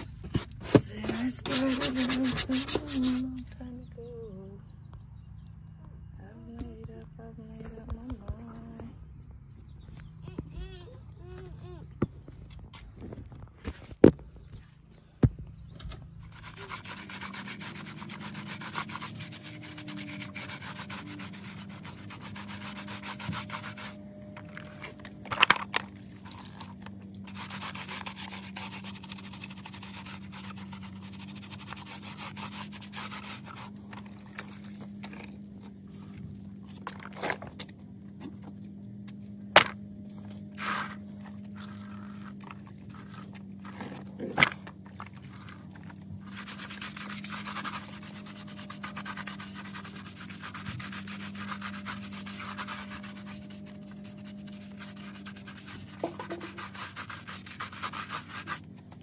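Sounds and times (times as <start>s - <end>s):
brush scrubbing rubber mats: 0.0s - 3.3s, 16.3s - 37.7s, 39.6s - 59.0s
steady low hum: 0.0s - 59.0s.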